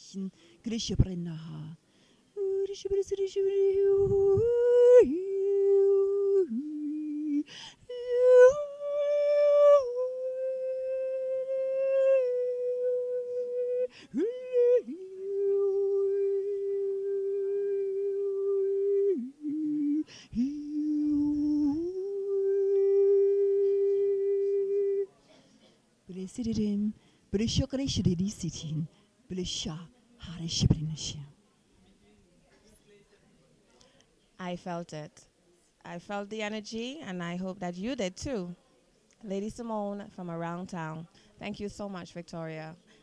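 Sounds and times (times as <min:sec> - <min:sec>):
woman breathing: 0:00.3 - 0:00.6, 0:01.8 - 0:02.4, 0:07.4 - 0:07.9, 0:13.9 - 0:14.2, 0:20.0 - 0:20.4, 0:27.0 - 0:27.3
woman humming long notes: 0:02.4 - 0:25.1.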